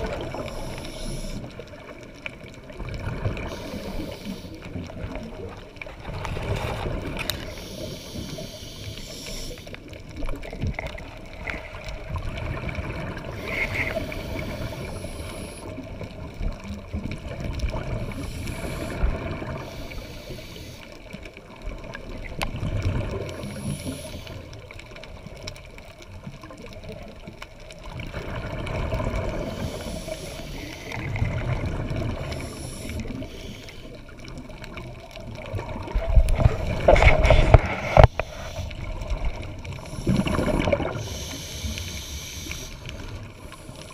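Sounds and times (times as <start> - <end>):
underwater low rumble with gurgling: 0.0 - 43.9
faint clicks: 7.0 - 12.0.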